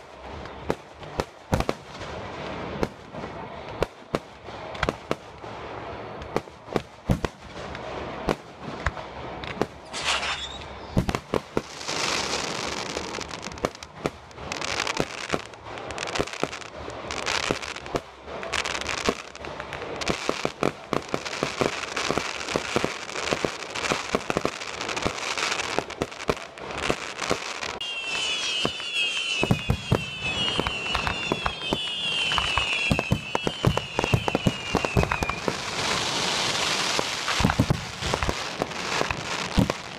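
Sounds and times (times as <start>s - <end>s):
firework shells bursting with bangs: 3.8s - 16.6s, 17.3s - 39.9s
shrill rising firework whistles: 9.8s - 11.1s, 27.4s - 38.2s.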